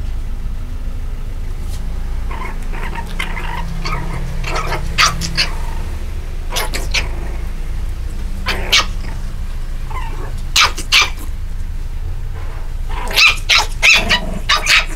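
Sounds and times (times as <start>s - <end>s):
low hum: 0.0s - 14.9s
puppies yelping and squeaking: 2.2s - 11.4s, 12.9s - 14.9s.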